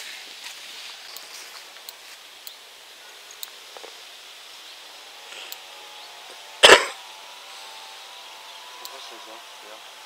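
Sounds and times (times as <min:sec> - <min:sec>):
faint clicks and rustles: 0:00.0 - 0:02.6
soft steady hiss: 0:00.0 - 0:10.0.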